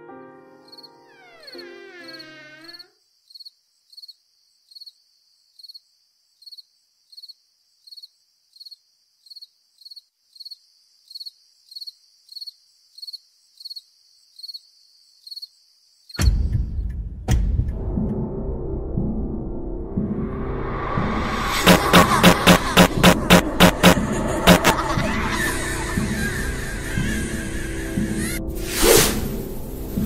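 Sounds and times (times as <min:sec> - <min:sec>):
crickets chirping: 0:00.6 - 0:16.2
loud deep hit: 0:17.3 - 0:27.2.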